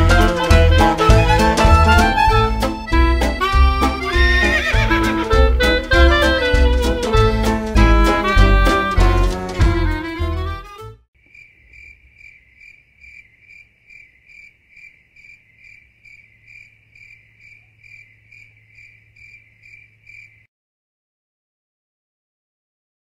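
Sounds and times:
swing music with saxophone: 0.0s - 11.0s
cricket chirping: 11.2s - 20.5s.

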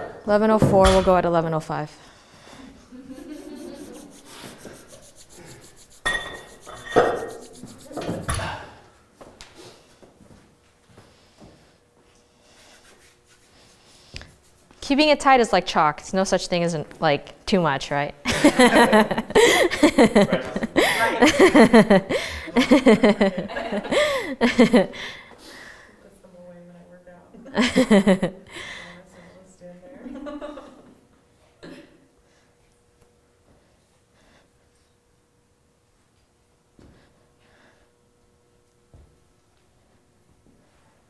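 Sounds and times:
people laughing: 2.9s - 4.8s, 18.3s - 25.0s, 27.5s - 28.4s
hands rubbing chalk: 3.1s - 8.4s, 12.4s - 14.9s.

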